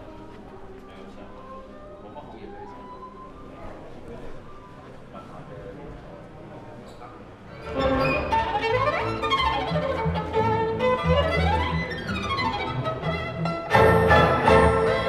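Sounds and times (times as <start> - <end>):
classical violin music: 7.5 - 15.0
low string bass accompaniment: 7.5 - 15.0.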